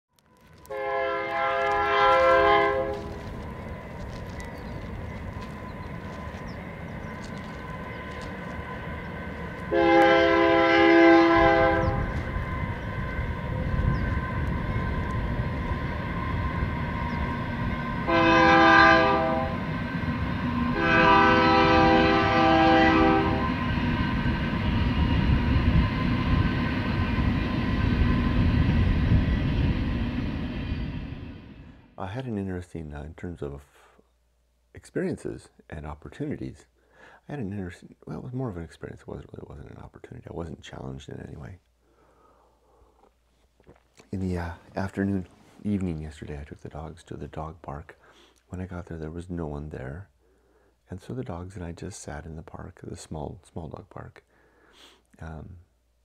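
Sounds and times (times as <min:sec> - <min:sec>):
train rumble: 0:00.2 - 0:32.3
train horn blasts: 0:00.6 - 0:03.4, 0:09.6 - 0:26.6.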